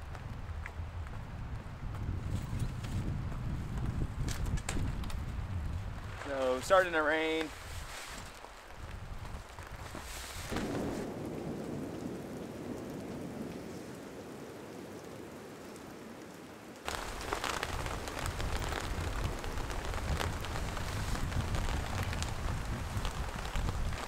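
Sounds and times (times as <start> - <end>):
raindrop hits: 0.0 - 24.0
steady rainfall: 0.0 - 24.0
thunder rumbling: 10.4 - 16.2, 16.9 - 24.0.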